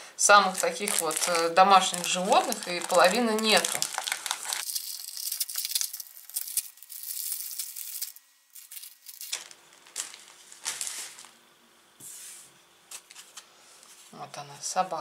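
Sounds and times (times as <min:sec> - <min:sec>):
plastic wrapper crinkling and tearing: 0:00.4 - 0:11.4.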